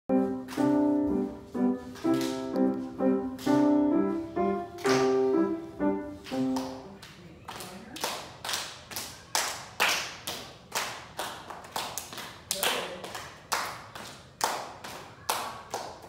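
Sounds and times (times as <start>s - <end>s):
people clapping in steady beat: 0.4s - 0.8s, 1.9s - 2.7s, 4.8s - 5.4s, 6.2s - 16.0s.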